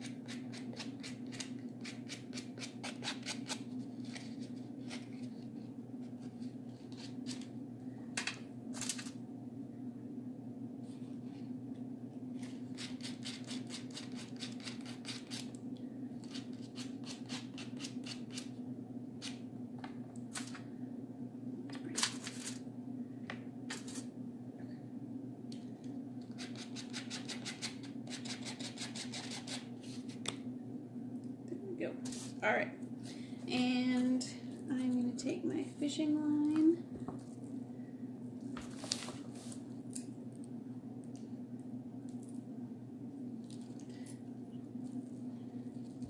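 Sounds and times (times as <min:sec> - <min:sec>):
steady low hum: 0:00.0 - 0:46.0
sandpaper rubbing on clay: 0:26.4 - 0:29.6.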